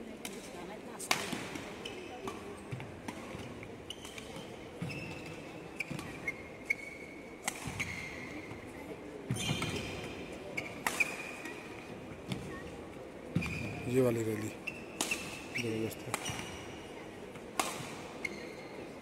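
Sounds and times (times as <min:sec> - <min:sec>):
racket hitting shuttlecock: 0:01.1 - 0:06.2, 0:07.4 - 0:08.5, 0:10.6 - 0:11.5, 0:15.0 - 0:15.5, 0:16.1 - 0:16.6, 0:17.4 - 0:18.2
shoes squeaking on court: 0:01.7 - 0:08.7, 0:09.3 - 0:12.6, 0:13.3 - 0:17.0, 0:17.6 - 0:19.0.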